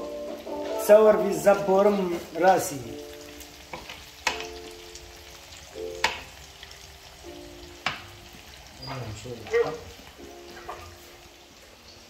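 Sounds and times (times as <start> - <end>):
meat and onions sizzling in pan: 0.0 - 12.0
wooden spatula knocking pan: 3.7 - 4.6, 6.0 - 6.3, 7.8 - 8.2.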